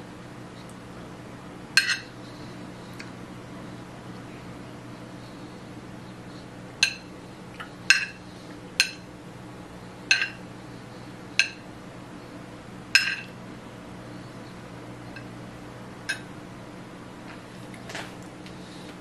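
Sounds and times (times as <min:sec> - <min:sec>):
faint steady hum: 0:00.0 - 0:19.0
fork clinking against plate: 0:10.1 - 0:10.4.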